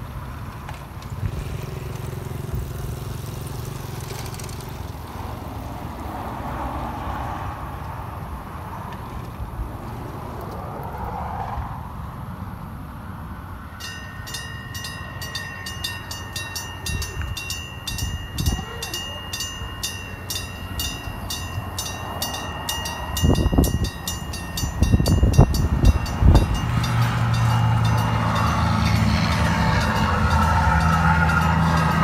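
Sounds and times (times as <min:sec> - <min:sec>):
train engine hum: 0:00.0 - 0:32.0
level crossing warning bell: 0:13.8 - 0:32.0
heavy low rumbles: 0:14.2 - 0:32.0.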